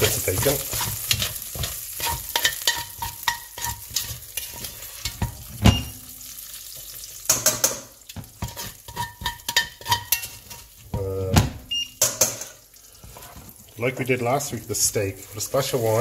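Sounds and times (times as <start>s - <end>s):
utensil clinking against pot: 0.0s - 6.0s, 7.3s - 11.4s, 12.0s - 13.3s
meat sizzling in a pot: 0.0s - 16.0s.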